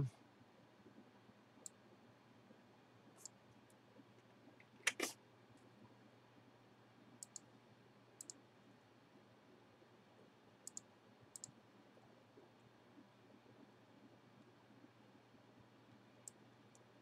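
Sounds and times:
computer mouse clicking: 0:01.6 - 0:01.8, 0:03.2 - 0:03.8, 0:07.2 - 0:07.5, 0:08.2 - 0:08.4, 0:10.6 - 0:11.6.

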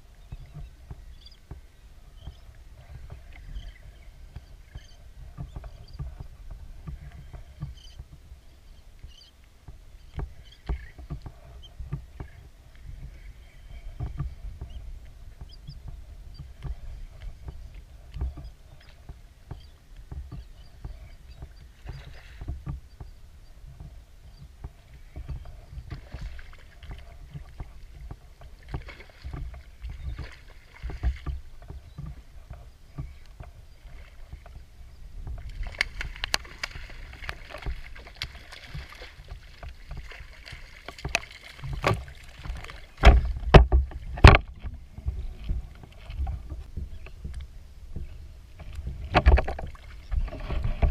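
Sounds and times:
waves lapping against kayak hull: 0:00.0 - 0:50.9
water splashing: 0:24.7 - 0:50.9
knocks on hull: 0:40.9 - 0:45.6.

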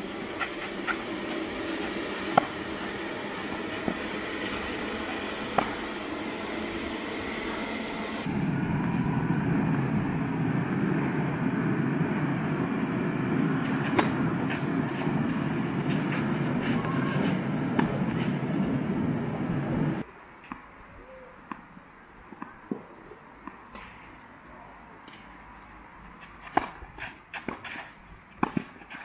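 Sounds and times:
low rumbling noise: 0:00.0 - 0:20.0
tennis ball being struck: 0:01.6 - 0:06.7.

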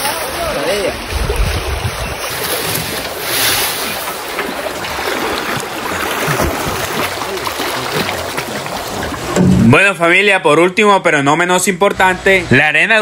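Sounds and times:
water sloshing and splashing: 0:00.0 - 0:09.8
wind on microphone: 0:00.9 - 0:03.8.

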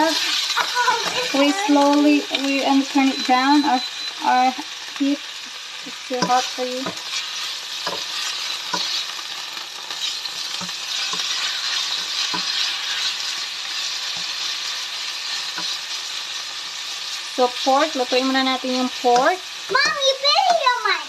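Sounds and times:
spatula knocking and scraping pan: 0:00.0 - 0:03.2, 0:05.9 - 0:09.1, 0:09.9 - 0:14.5, 0:15.3 - 0:15.8, 0:17.5 - 0:20.8
meat sizzling in frying pan: 0:00.0 - 0:21.0.

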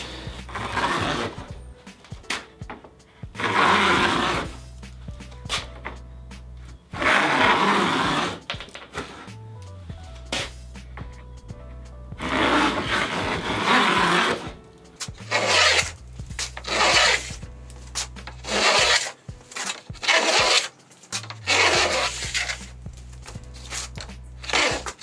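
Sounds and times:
hand plane rasping on wood: 0:00.0 - 0:01.5, 0:03.4 - 0:04.6, 0:07.0 - 0:09.4, 0:12.2 - 0:22.8, 0:23.6 - 0:25.0
low background music: 0:00.0 - 0:25.0.

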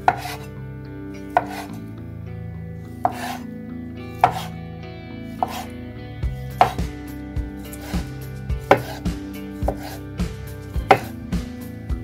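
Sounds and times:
knife knocking on wooden board: 0:03.1 - 0:03.4, 0:04.2 - 0:04.5, 0:05.4 - 0:05.7, 0:06.6 - 0:06.8, 0:08.7 - 0:09.0, 0:10.9 - 0:11.1.

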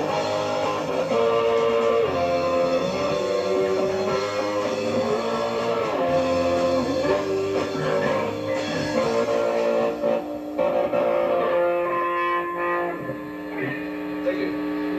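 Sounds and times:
electric guitar notes and chords: 0:00.0 - 0:14.9.

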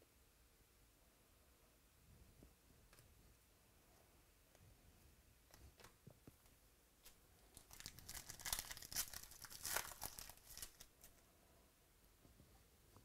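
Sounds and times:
foil wrapper crinkling and tearing: 0:07.5 - 0:11.2.

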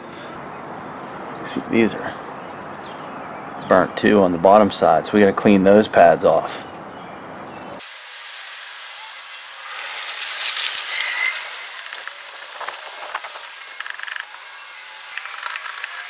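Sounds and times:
metal pick scraping metal: 0:10.9 - 0:16.0.

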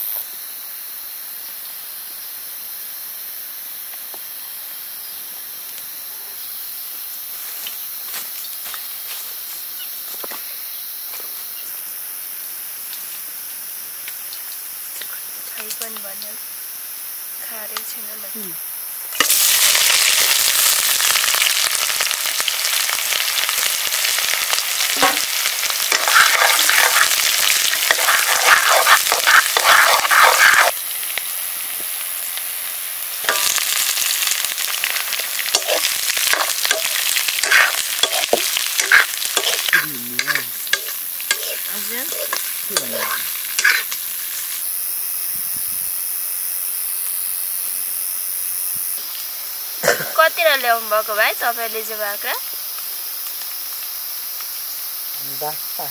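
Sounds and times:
curry sizzling in hot oil: 0:19.0 - 0:45.3, 0:45.9 - 0:55.9
spoon scraping pan: 0:25.9 - 0:30.8, 0:35.5 - 0:44.0.

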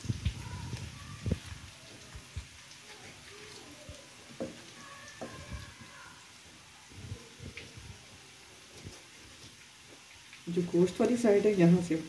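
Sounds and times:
soft knocks: 0:04.4 - 0:04.6.

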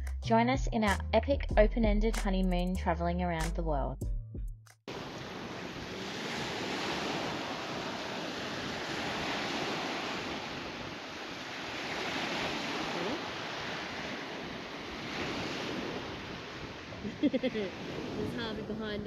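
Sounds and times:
small waves washing on shore: 0:04.9 - 0:19.0.

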